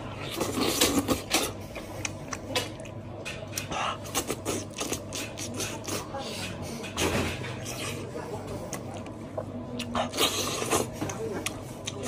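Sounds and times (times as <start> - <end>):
steady low hum: 0.0 - 12.0
wet chewing and sucking on bone: 3.6 - 6.2.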